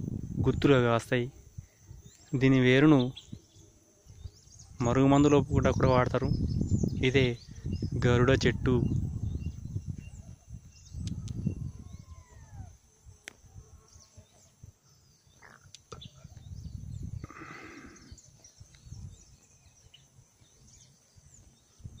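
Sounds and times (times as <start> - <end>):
low microphone rumbles: 0.0 - 2.1, 4.1 - 12.8, 15.9 - 19.6
bird chirps and calls: 1.4 - 22.0
high insect buzz: 8.9 - 22.0
short rough bird call: 17.2 - 18.3.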